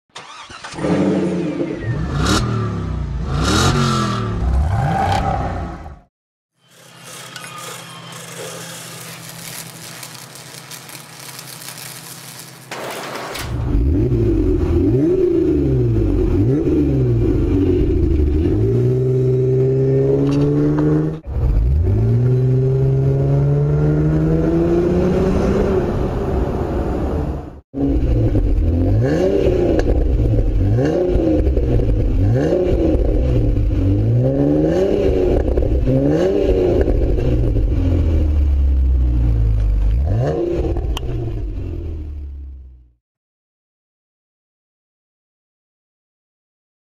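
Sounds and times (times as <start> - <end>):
car engine revving: 0.2 - 6.1.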